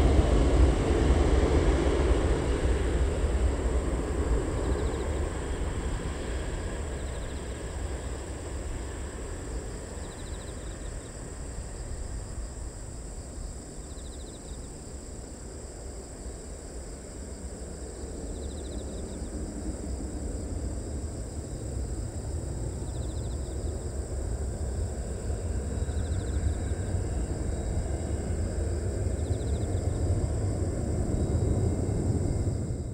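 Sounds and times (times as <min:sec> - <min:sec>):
distant jet engines rumbling: 0:00.0 - 0:32.9
high insect-like chirp: 0:02.9 - 0:32.9.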